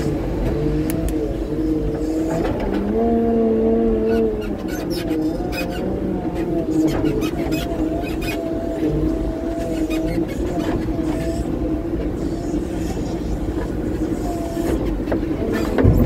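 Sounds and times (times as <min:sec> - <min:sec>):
diesel engine running: 0:10.4 - 0:16.0.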